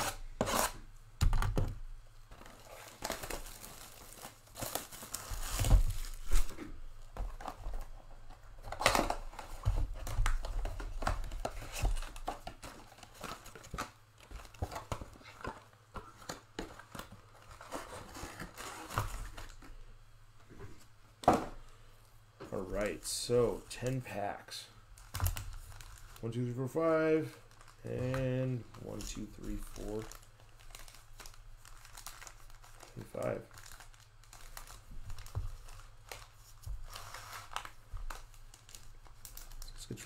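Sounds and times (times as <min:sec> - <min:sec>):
foil packs crinkling: 0:02.3 - 0:06.5, 0:25.0 - 0:40.0.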